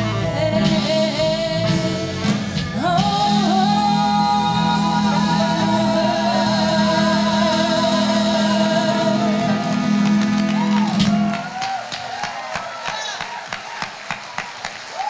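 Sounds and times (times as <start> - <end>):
gospel choir singing: 3.0 - 10.9
hand claps and applause: 9.6 - 15.0.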